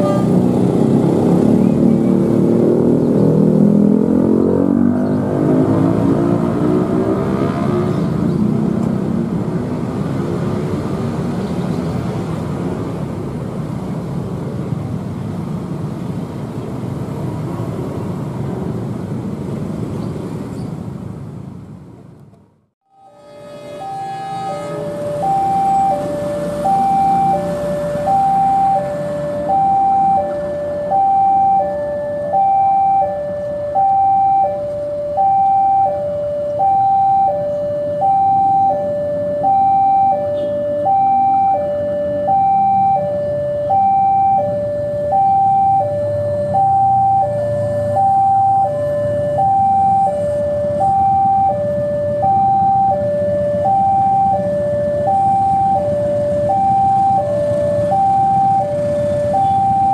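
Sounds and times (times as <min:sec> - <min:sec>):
diesel locomotive engine rumble: 0:00.0 - 0:03.6, 0:07.9 - 0:38.3
level crossing two-tone alarm: 0:22.9 - 0:59.9.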